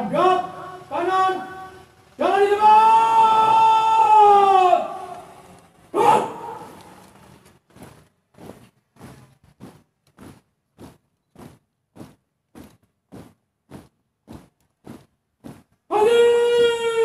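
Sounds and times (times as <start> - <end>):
marching boots on gravel: 6.3 - 16.0.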